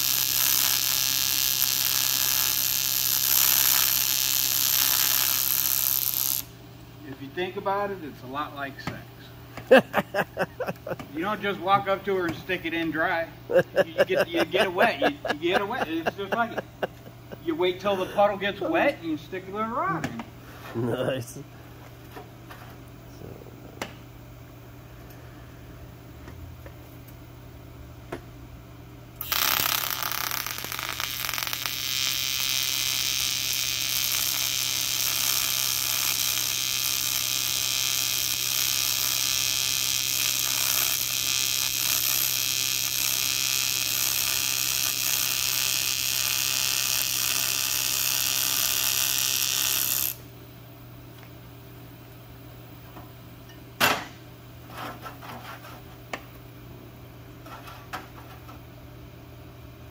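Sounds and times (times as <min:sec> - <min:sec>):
welding arc hiss: 0:00.0 - 0:06.6, 0:09.6 - 0:18.9, 0:29.2 - 0:50.3.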